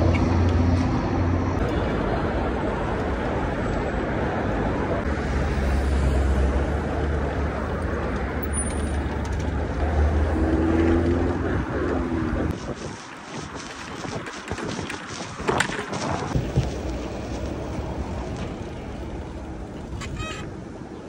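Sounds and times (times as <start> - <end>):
passing vehicle engine rumble: 0.0 - 12.6
road traffic noise: 0.0 - 21.0.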